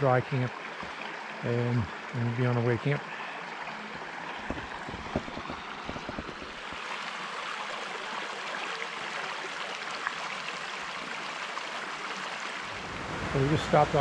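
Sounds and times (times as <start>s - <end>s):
creek water over rocks: 0.0s - 14.0s
light knocks: 4.4s - 6.8s.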